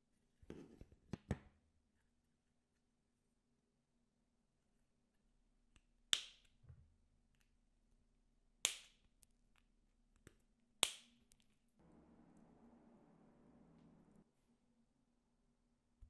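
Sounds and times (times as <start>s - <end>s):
sharp snaps: 6.1s - 6.6s, 8.6s - 9.2s, 10.8s - 11.4s.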